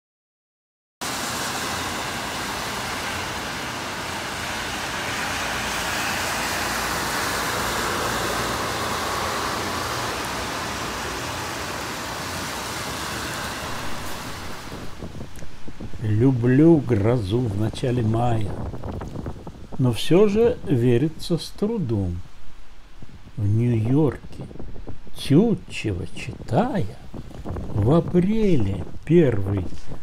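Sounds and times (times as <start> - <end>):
tyres swishing on wet road: 1.0 - 20.4
rain hiss: 1.0 - 30.0.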